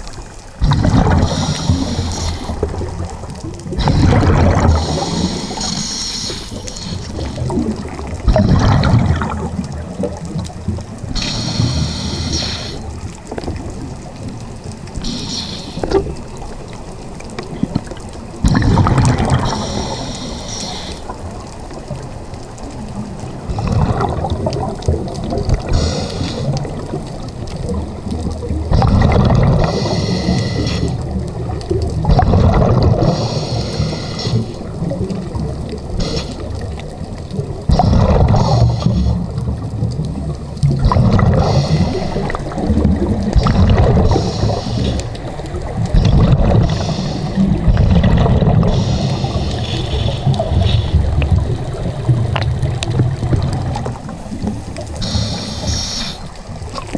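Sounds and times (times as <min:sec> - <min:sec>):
gurgling exhaled bubbles: 0:00.6 - 0:16.7, 0:17.4 - 0:56.9
regulator inhale hiss: 0:01.2 - 0:02.7, 0:04.8 - 0:07.5, 0:11.2 - 0:13.0, 0:15.0 - 0:16.0, 0:19.4 - 0:21.1, 0:25.7 - 0:26.6, 0:29.6 - 0:31.0, 0:33.1 - 0:34.6, 0:36.0 - 0:36.6, 0:38.3 - 0:39.3, 0:41.3 - 0:42.4, 0:44.0 - 0:45.2, 0:46.6 - 0:47.4, 0:48.6 - 0:51.1, 0:54.9 - 0:56.4.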